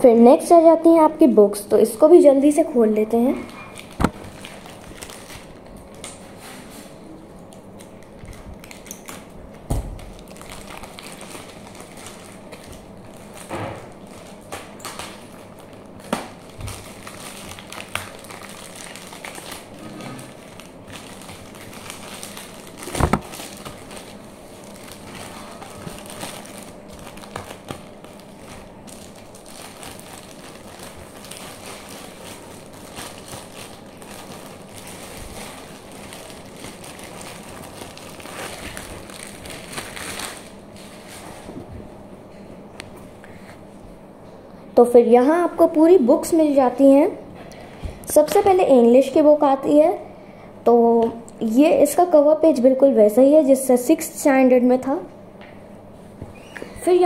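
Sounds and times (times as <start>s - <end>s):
plastic wrapping crinkling: 2.5s - 41.5s
books knocking: 22.9s - 23.2s.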